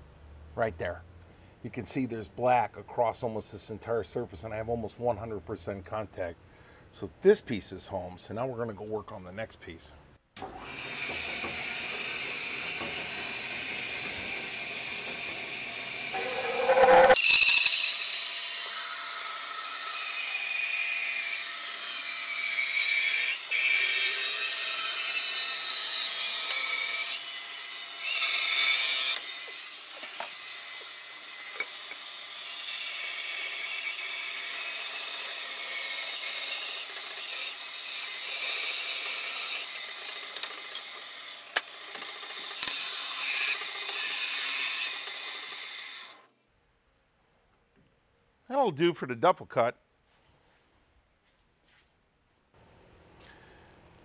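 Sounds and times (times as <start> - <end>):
bandsaw cutting wood: 10.4 - 46.3.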